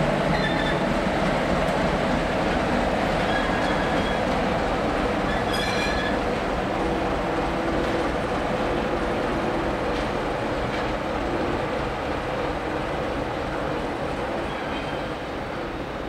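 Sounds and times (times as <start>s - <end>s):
high wheel squeals: 3.2s - 4.3s, 5.3s - 6.2s.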